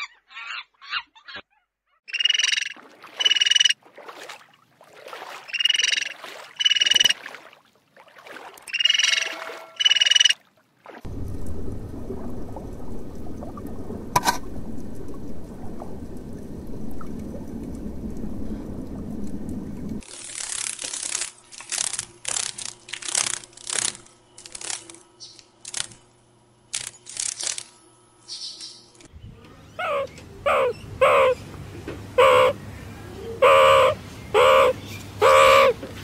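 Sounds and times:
underwater rumble of moving water: 11.0s - 20.1s.

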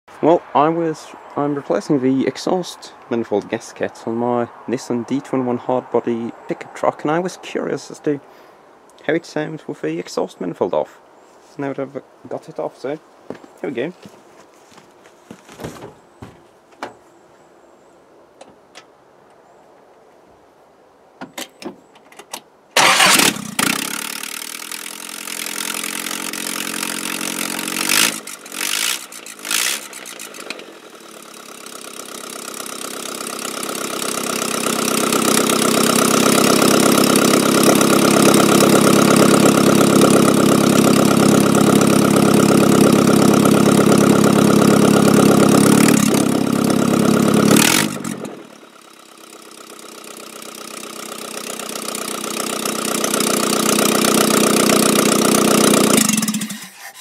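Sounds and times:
engine starting and running loudly: 22.8s - 57.0s.

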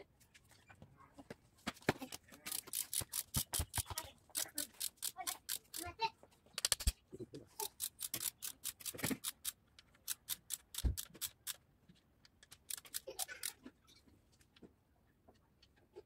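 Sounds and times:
ratchet wrench clicking: 2.5s - 5.9s, 7.7s - 11.6s, 12.4s - 13.5s.

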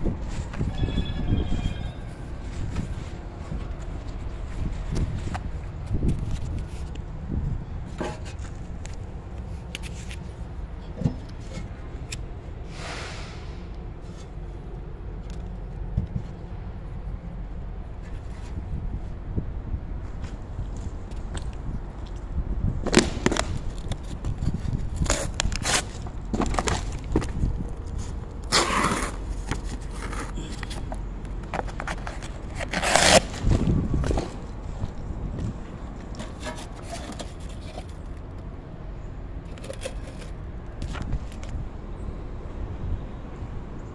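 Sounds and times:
low rumble of traffic: 0.0s - 43.9s
short hiss: 12.7s - 13.6s.

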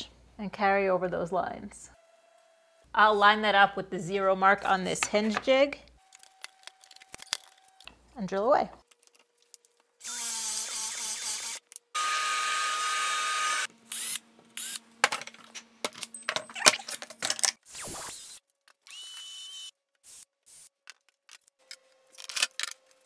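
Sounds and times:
cordless drill boring wood: 10.0s - 14.8s, 18.1s - 20.7s.

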